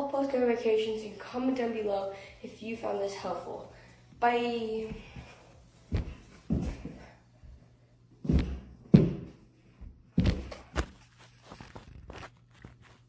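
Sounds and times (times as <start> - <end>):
heavy thumps of feet on floor: 4.8 - 7.2, 8.2 - 11.1.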